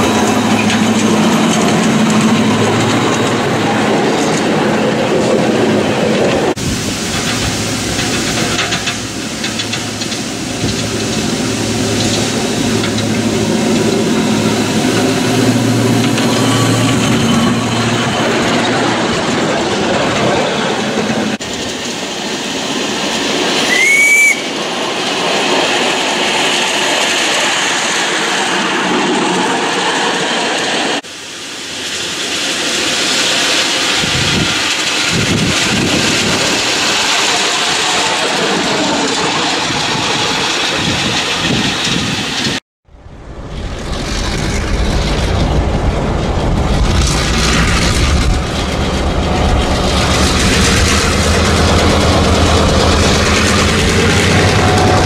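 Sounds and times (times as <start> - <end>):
miniature steam locomotive running: 0.0 - 42.6, 43.2 - 55.0
diesel locomotive engine running: 0.0 - 55.0
steam whistle toot: 23.6 - 24.6.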